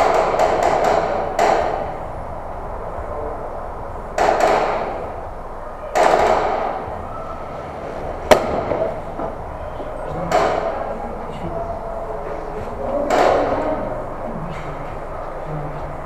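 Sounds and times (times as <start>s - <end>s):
sharp crack: 5.9s - 7.0s, 8.2s - 9.2s
airsoft guns firing: 6.0s - 6.9s, 8.3s - 9.0s.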